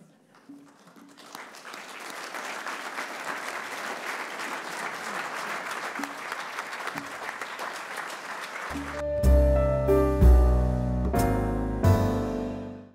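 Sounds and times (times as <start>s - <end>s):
crowd applauding: 0.0s - 9.1s.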